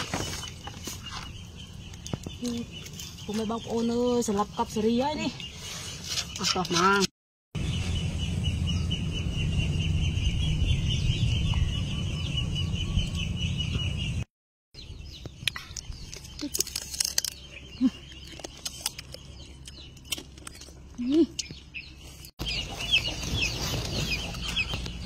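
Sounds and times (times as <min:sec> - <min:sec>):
steady low rumble: 0:07.6 - 0:14.2.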